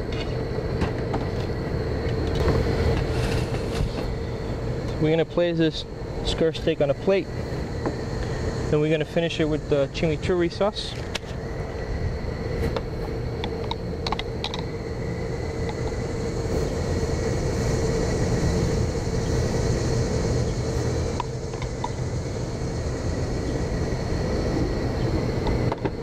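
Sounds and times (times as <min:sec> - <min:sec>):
mechanical hum with tone: 0:00.0 - 0:26.0.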